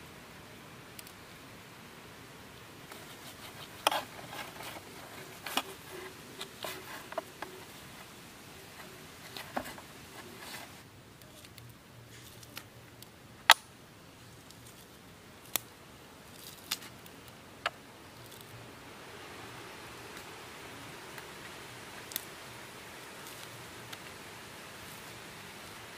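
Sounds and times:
faint steady hiss: 0.0s - 25.9s
dried fish snapping: 15.4s - 15.7s, 16.4s - 16.9s.

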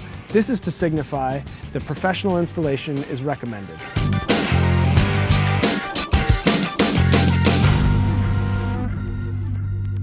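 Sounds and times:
music final chord with deep bass: 4.0s - 10.0s.

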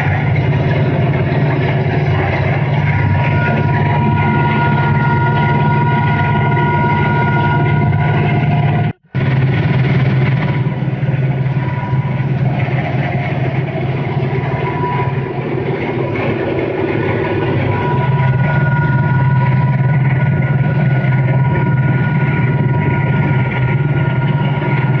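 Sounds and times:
steady high whine: 0.0s - 25.0s
tractor engine at high revs: 0.0s - 25.0s.

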